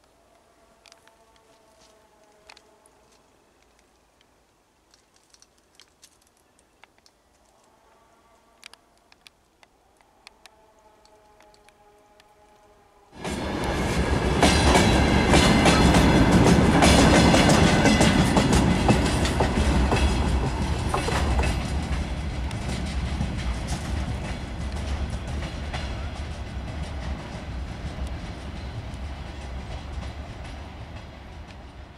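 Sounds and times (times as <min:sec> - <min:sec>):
freight train rumble: 0:13.2 - 0:31.9
train wheels clacking over rail joints: 0:13.2 - 0:31.9.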